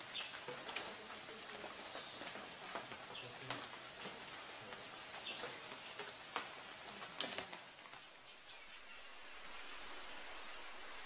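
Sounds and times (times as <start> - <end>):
high-pitched insect drone: 8.2 - 11.0.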